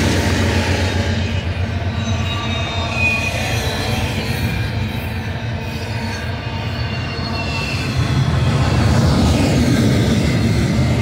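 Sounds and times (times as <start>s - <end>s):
steel wheels rumbling on rail: 0.0s - 11.0s
high-pitched wheel squeal: 0.3s - 8.9s.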